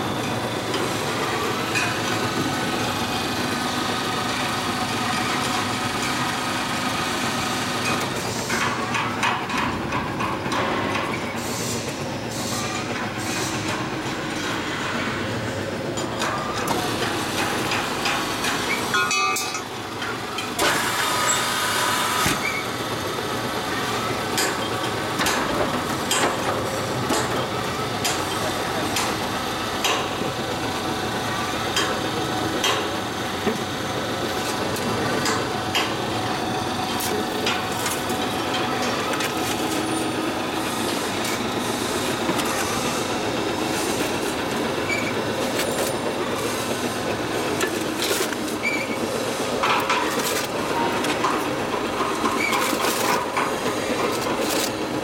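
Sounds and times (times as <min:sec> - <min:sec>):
block machine motors running: 0:12.8 - 0:55.0.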